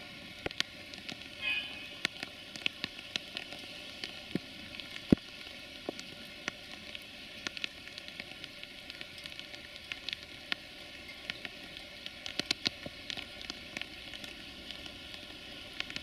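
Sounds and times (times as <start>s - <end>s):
rain hissing: 0.0s - 16.0s.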